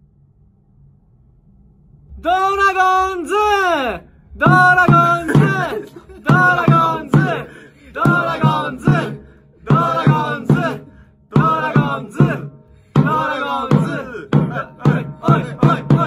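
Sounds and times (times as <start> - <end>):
voices singing a cheering chant: 4.4 - 16.0.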